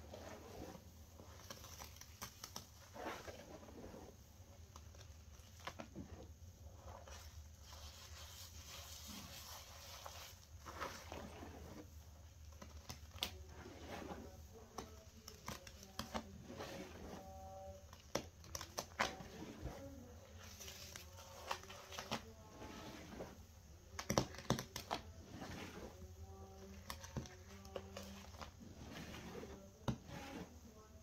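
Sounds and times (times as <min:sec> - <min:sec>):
crackling foam: 0:00.0 - 0:31.0
wet squelching of soap paste: 0:02.0 - 0:12.3, 0:15.4 - 0:17.4.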